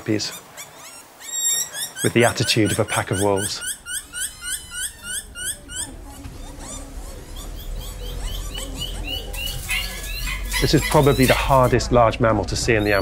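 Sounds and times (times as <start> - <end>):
bush dogs whining: 0.2 - 11.9, 12.7 - 13.0
low rumble: 4.9 - 10.6.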